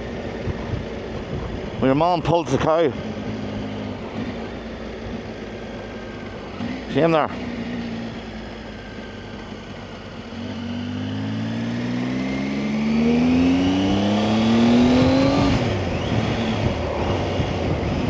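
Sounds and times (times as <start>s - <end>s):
motorcycle engine accelerating: 0.0s - 18.0s
wind rush: 14.8s - 18.0s.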